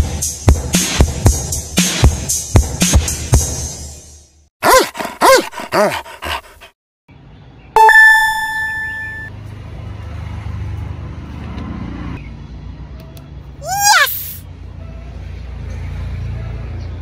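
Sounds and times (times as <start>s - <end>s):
bright ringing tone: 7.8s - 9.3s
cartoon chirps: 7.8s - 9.3s.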